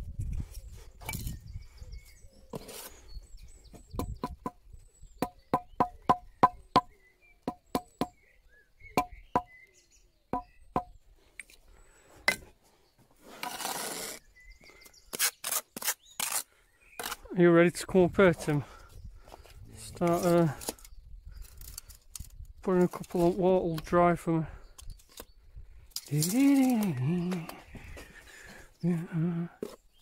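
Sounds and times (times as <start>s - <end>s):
trowel scraping: 2.5s - 3.1s, 13.2s - 14.2s, 15.1s - 17.3s.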